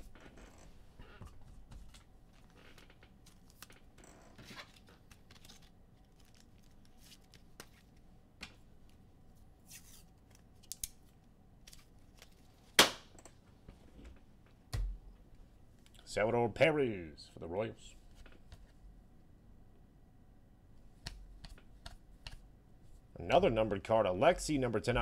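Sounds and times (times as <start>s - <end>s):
card pack wrapper rustling: 4.6s - 8.0s
loud sharp crack: 12.8s - 13.1s.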